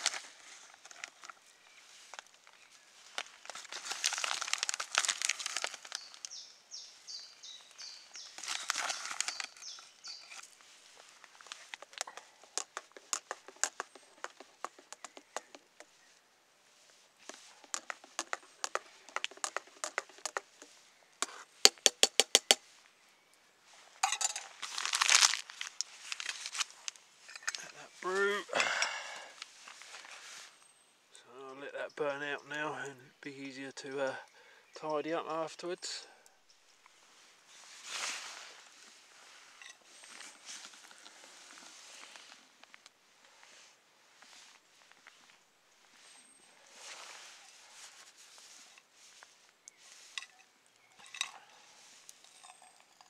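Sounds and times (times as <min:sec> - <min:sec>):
crinkly rustling: 0:00.0 - 0:06.4, 0:07.4 - 0:21.0, 0:23.7 - 0:28.4, 0:36.9 - 0:53.0
metal spoon stirring in pot: 0:11.4 - 0:15.9, 0:17.2 - 0:21.4.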